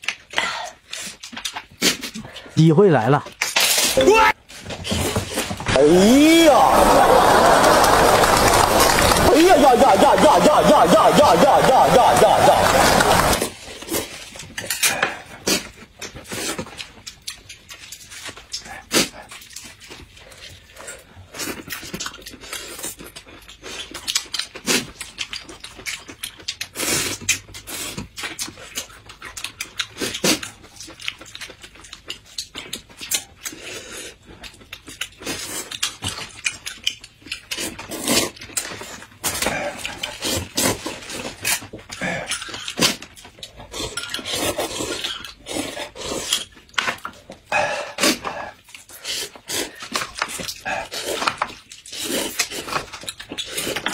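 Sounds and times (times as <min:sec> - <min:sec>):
chewing and mouth smacking: 0:13.7 - 0:53.9.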